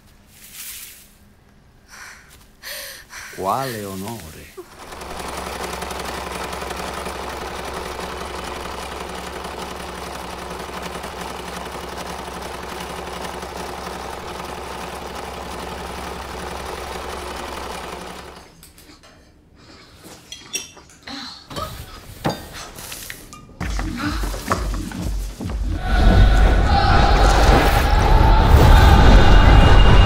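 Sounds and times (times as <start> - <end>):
machine whirring and humming: 4.6 - 18.7.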